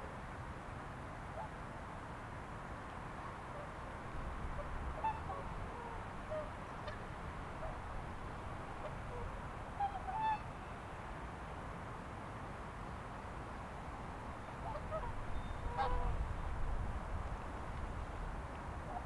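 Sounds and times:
steady background noise: 0.0s - 19.0s
waterfowl calling: 4.6s - 7.8s, 8.6s - 10.6s, 14.6s - 16.2s.

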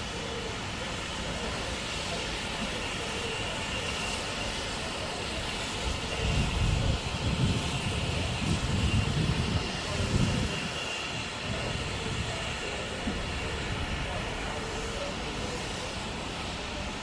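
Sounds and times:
steam locomotive rumbling: 0.0s - 17.0s.

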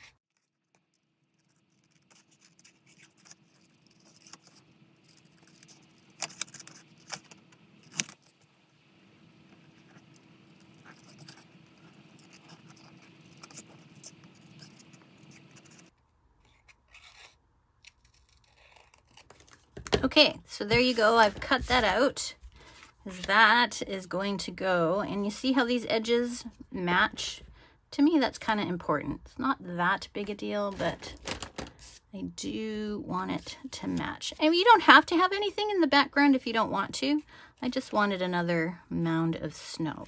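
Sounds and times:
scissors snipping paper: 0.3s - 8.4s, 9.6s - 15.9s, 16.5s - 19.8s.

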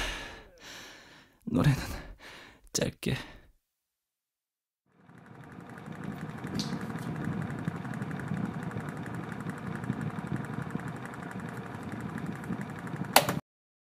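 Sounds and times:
motor running with low rumble: 0.0s - 1.2s, 4.9s - 13.4s.

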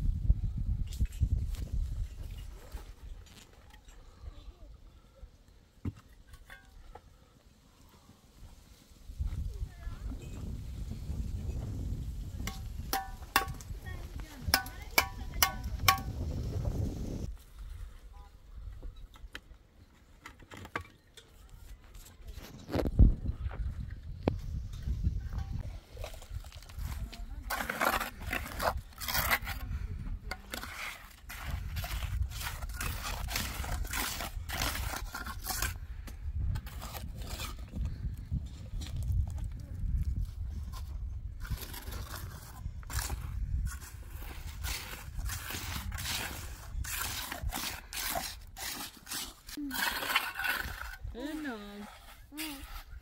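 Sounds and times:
wind rumble on microphone: 0.0s - 3.2s, 8.9s - 19.2s, 22.2s - 48.0s
scraping strokes: 40.6s - 53.0s.

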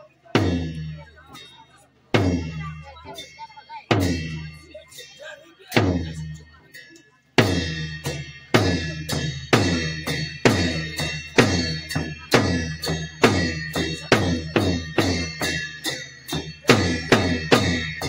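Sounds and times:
large drum beating: 2.2s - 2.7s, 7.4s - 18.0s
cymbals struck: 5.7s - 18.0s.

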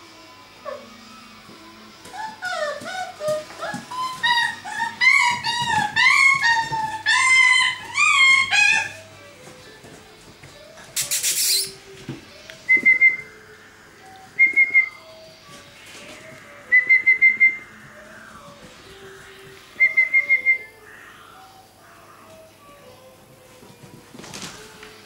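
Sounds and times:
brief hiss: 11.0s - 11.8s
person whistling short pips: 11.0s - 11.8s.

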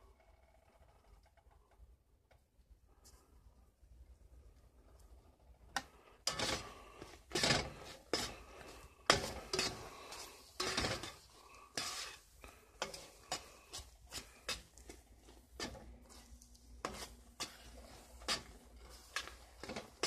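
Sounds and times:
spatula scraping a skillet: 5.7s - 20.0s.

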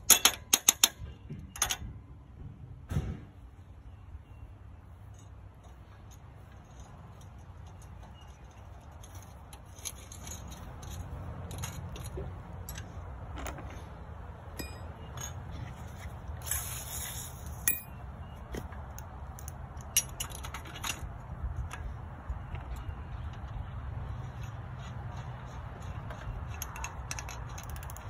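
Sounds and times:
metal parts clinking: 0.0s - 1.8s, 5.1s - 13.9s, 14.5s - 18.0s, 19.3s - 23.6s, 25.8s - 28.0s
metal scrape: 14.6s - 18.0s.

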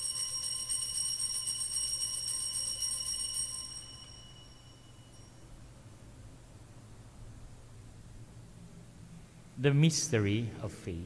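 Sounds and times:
altar bells jingling: 0.0s - 5.8s.

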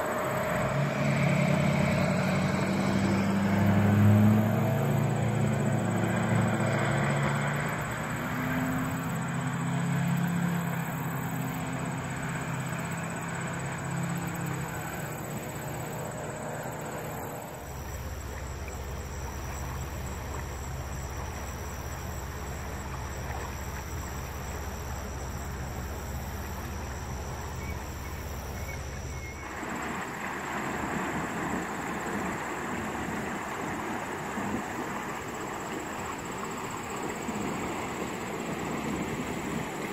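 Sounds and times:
low vehicle rumble: 0.0s - 35.1s
river water rushing: 0.0s - 39.9s
deep steady rumble: 13.3s - 29.6s.

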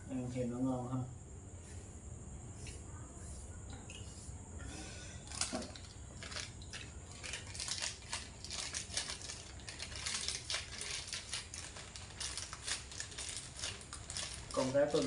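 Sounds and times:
wrapper crinkling: 5.3s - 15.0s.

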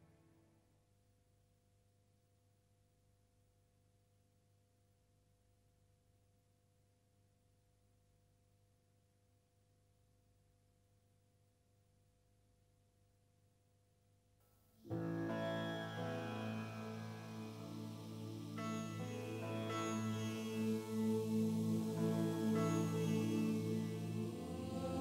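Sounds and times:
faint steady hum: 14.9s - 25.0s.

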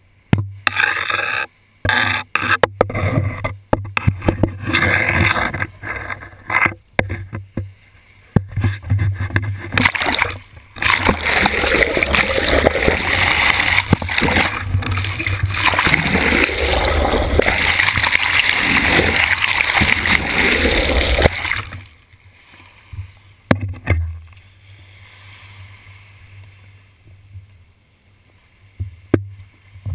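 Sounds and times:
water splashing against camera: 8.4s - 22.0s
water rushing past underwater: 9.7s - 21.9s.

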